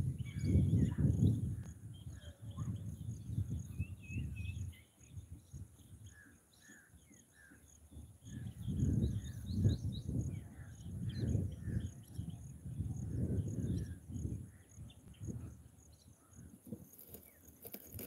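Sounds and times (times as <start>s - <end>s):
small birds chirping: 0.0s - 18.0s
insects buzzing: 13.6s - 18.0s.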